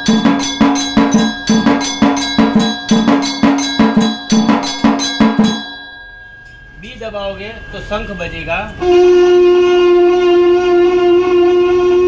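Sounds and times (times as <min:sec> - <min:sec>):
beaters striking steel drum: 0:00.0 - 0:09.0
small cymbal strikes: 0:00.0 - 0:09.5
brass bell ringing: 0:00.0 - 0:10.4.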